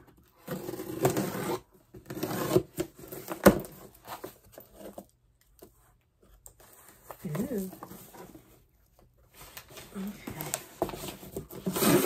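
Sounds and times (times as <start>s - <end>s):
paper and cardboard rustling tearing: 9.5s - 12.0s.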